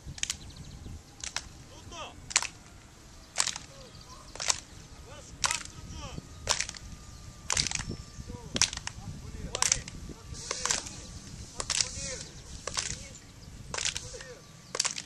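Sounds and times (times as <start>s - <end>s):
hand claps in steady beat: 1.2s - 1.5s, 2.3s - 2.6s, 3.4s - 3.7s, 4.4s - 4.7s, 8.6s - 9.0s, 12.7s - 13.0s, 13.7s - 14.1s, 14.8s - 15.0s.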